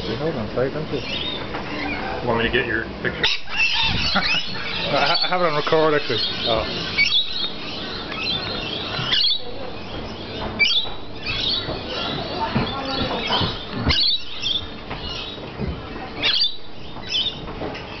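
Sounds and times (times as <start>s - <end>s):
parrots chattering: 0.9s - 18.0s
shrill bird screeches: 3.2s - 4.8s.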